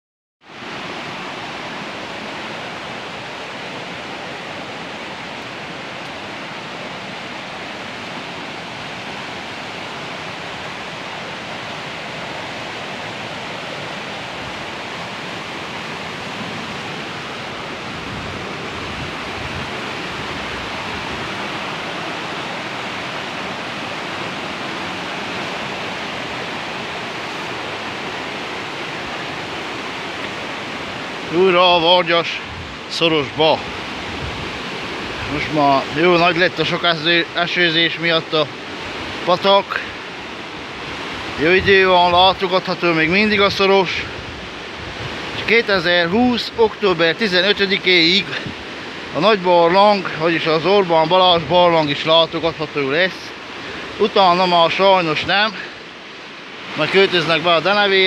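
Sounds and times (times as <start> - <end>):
stream rushing over rocks: 0.5 - 58.0.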